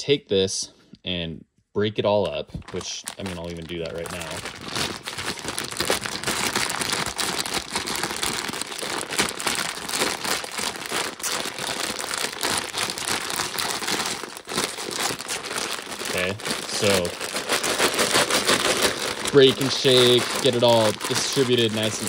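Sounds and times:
plastic bag crinkling: 2.4 - 22.0.

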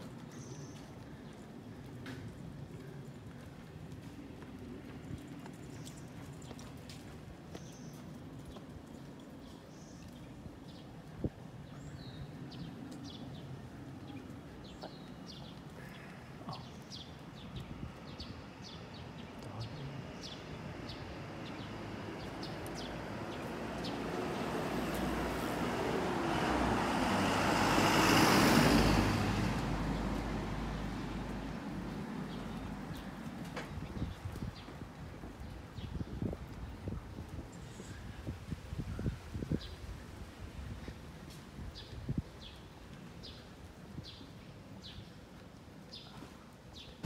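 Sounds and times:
footsteps on pavement: 0.0 - 12.3, 14.3 - 38.0, 40.7 - 47.0
car passing: 18.8 - 33.6.

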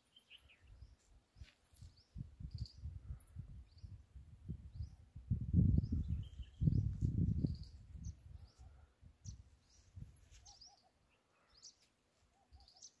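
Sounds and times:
small birds chirping: 0.0 - 13.0
wind buffeting microphone: 2.0 - 10.2.

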